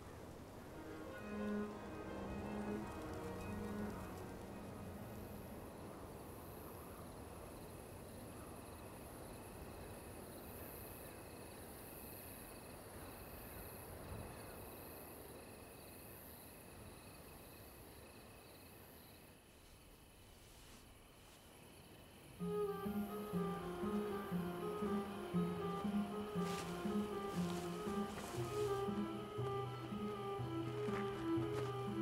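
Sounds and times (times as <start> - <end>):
crickets chirping: 0.0 - 32.0
low even hiss: 0.0 - 32.0.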